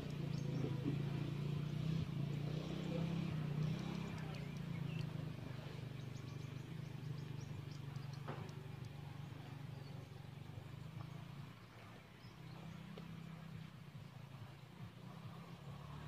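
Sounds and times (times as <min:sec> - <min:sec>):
low mechanical hum: 0:00.0 - 0:16.0
faint high ticks: 0:07.8 - 0:09.0.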